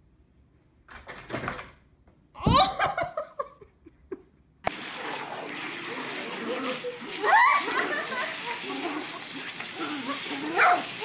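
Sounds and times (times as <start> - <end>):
person laughing: 2.4 - 4.4.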